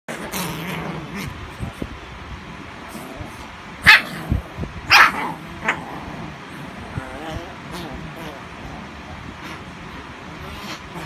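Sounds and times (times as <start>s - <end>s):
puppies play-fighting: 0.1s - 11.0s
puppy yapping barks: 3.8s - 4.2s, 4.9s - 5.4s.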